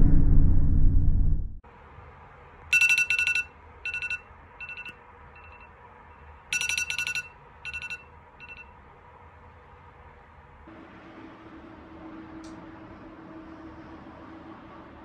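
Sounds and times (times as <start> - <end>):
smartphone alarm beeps: 2.7 - 8.7.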